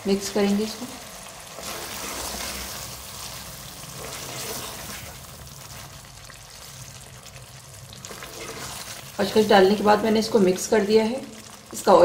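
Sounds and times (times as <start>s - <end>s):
curry sizzling in a pot: 0.0s - 12.0s
wooden spatula stirring: 1.5s - 10.6s.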